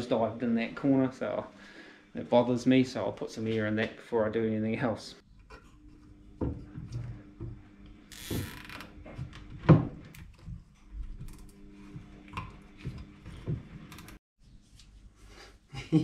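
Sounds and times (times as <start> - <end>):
faint steady hum: 0.0 - 8.2.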